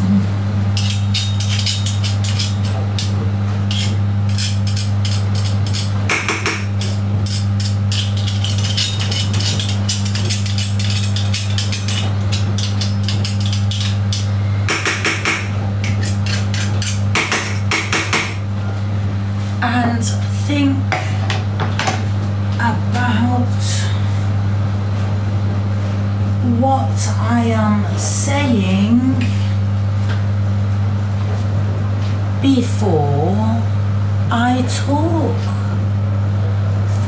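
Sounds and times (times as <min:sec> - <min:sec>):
steady low hum: 0:00.0 - 0:37.0
metal utensils scraping a frying pan: 0:00.8 - 0:03.1, 0:03.7 - 0:05.9, 0:06.8 - 0:14.0.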